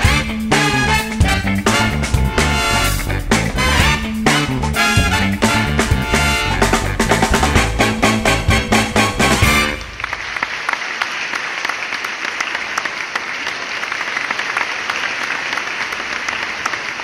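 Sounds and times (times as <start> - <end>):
audience applauding: 7.2 - 17.0.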